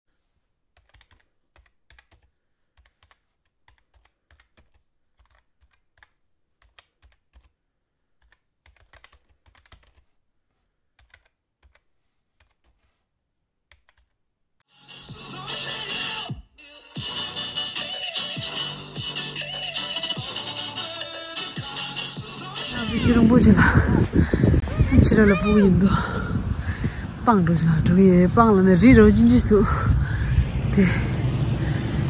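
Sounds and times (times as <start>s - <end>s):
computer keyboard typing: 0.8s - 7.5s, 8.2s - 10.2s, 11.0s - 12.9s, 13.7s - 14.1s.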